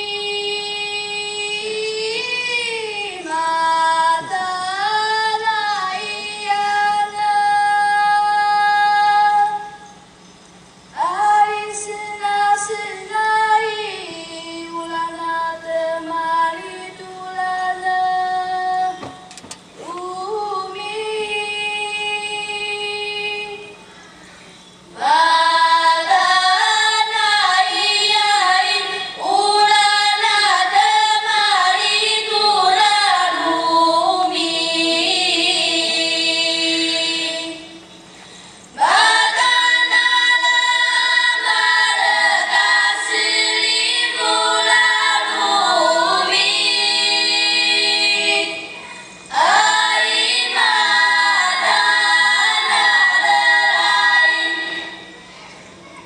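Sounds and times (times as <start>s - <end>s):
children's choir singing: 0.0s - 9.7s, 24.9s - 37.9s, 38.8s - 55.7s.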